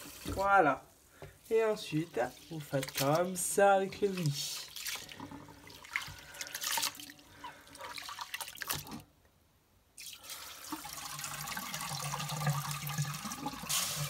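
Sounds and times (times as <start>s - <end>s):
water pouring through metal sieve: 1.8s - 9.0s, 10.0s - 14.0s.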